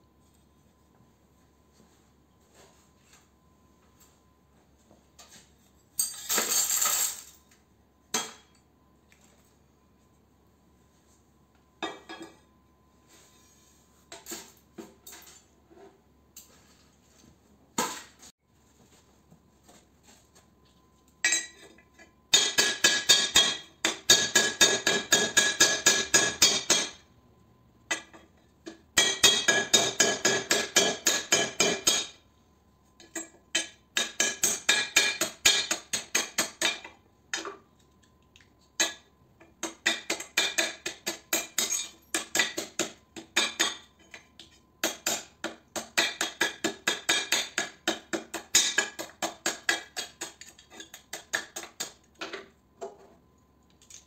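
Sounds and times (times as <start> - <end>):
hammer tapping on metal: 27.9 - 32.2.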